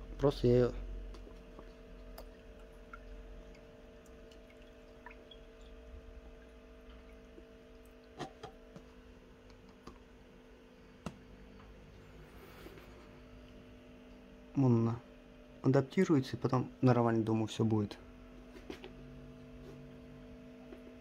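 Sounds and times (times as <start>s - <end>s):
faint steady hum: 0.0s - 21.0s
water dripping: 1.0s - 8.8s.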